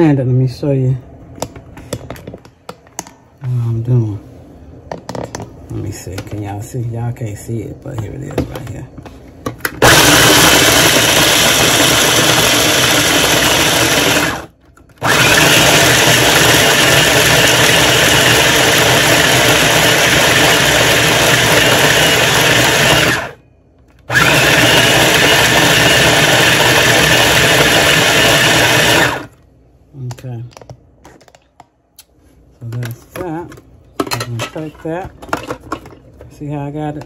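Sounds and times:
electric blender chopping nuts: 9.8 - 23.4, 24.1 - 29.4.

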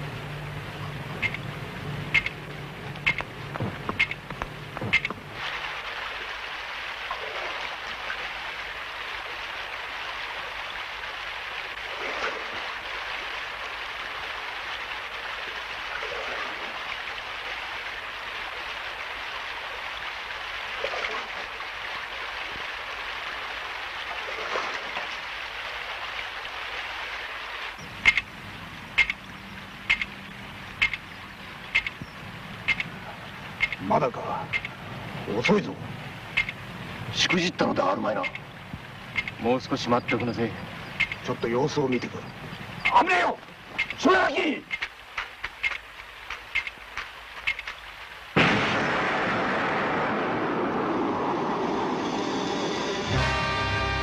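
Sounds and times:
sharp clicks: 1.2 - 1.4, 2.1 - 2.4, 3.0 - 5.2, 28.0 - 28.3, 29.0 - 29.2, 29.8 - 30.2, 30.8 - 31.1, 31.7 - 32.9, 33.6 - 33.8, 34.5 - 34.8, 36.3 - 36.6, 38.2 - 38.5, 39.1 - 39.4, 41.0 - 41.3, 42.8 - 44.0, 44.7 - 47.8
steady rushing noise: 44.8 - 53.3.

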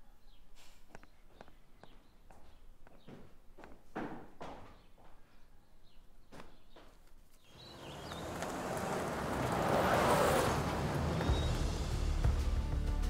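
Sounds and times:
sharp footsteps: 6.3 - 12.4
wash of noise: 7.7 - 12.2.

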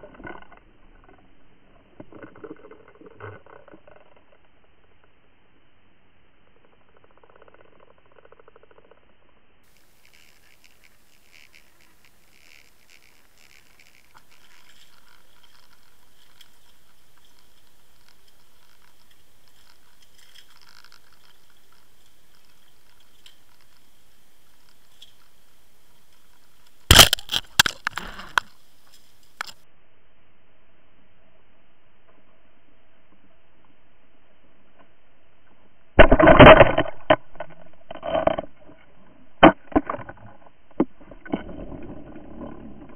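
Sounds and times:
underwater water noise: 0.0 - 42.9
light ticking and scraping: 6.5 - 29.7
thin high hum: 9.1 - 42.9.

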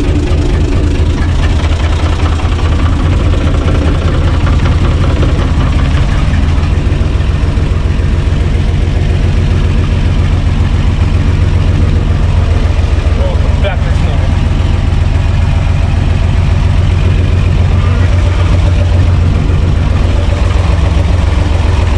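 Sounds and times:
tractor diesel engine chugging: 0.0 - 21.9.

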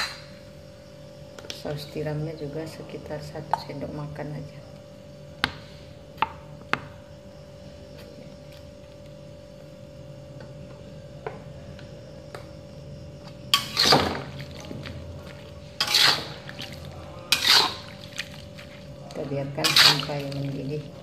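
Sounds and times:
faint steady hum: 0.0 - 21.0
metal spatula scraping wok: 13.6 - 14.2, 15.7 - 16.6, 17.3 - 17.9, 19.5 - 20.5.

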